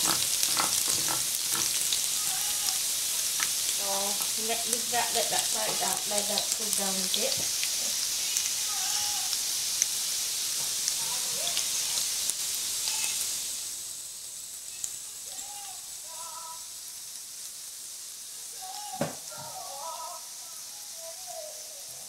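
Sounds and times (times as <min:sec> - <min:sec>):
onions sizzling in oil: 0:00.0 - 0:22.0
knock: 0:19.0 - 0:19.5.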